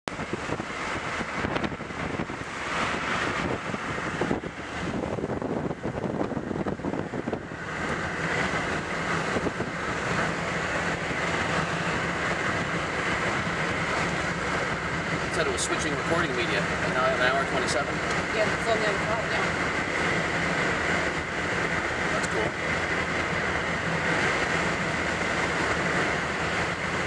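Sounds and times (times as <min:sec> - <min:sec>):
road and engine rumble: 0:00.0 - 0:27.0
wind on the microphone: 0:00.1 - 0:11.5.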